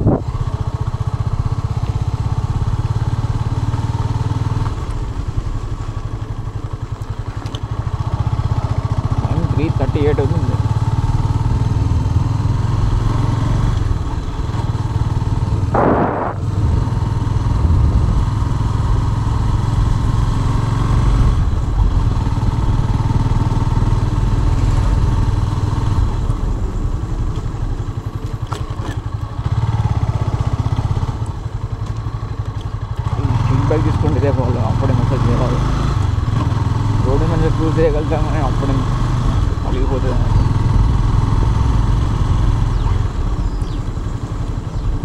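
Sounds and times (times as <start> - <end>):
motorcycle engine rumbling: 0.0 - 45.0.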